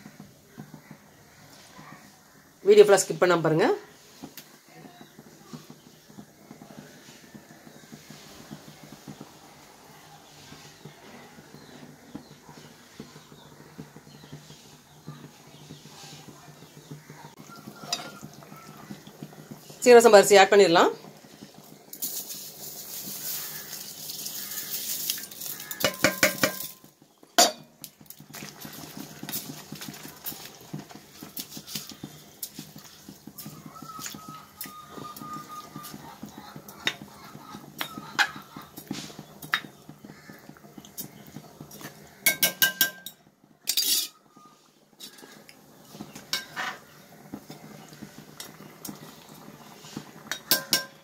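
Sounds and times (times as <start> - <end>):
rice pouring with hissing rush: 0.0 - 2.6, 3.8 - 19.8, 20.9 - 27.2, 27.8 - 42.2, 44.2 - 51.0
ladle scraping metal pot: 17.6 - 19.7, 21.3 - 44.3, 45.0 - 51.0.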